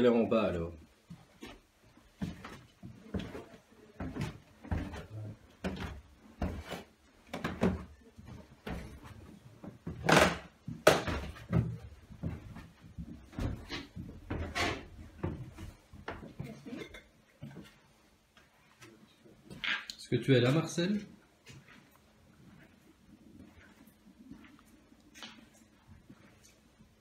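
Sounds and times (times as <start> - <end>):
footsteps down stairs: 1.0 - 16.7.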